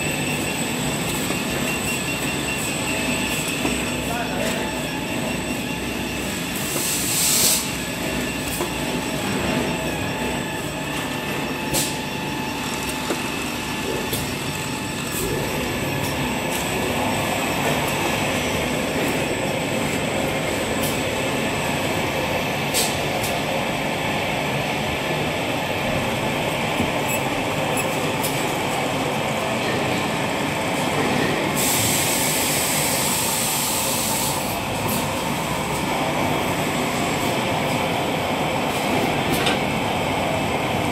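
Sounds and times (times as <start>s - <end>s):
machinery mechanical noise: 0.0s - 40.9s
machine hiss: 6.6s - 7.8s, 31.5s - 35.0s.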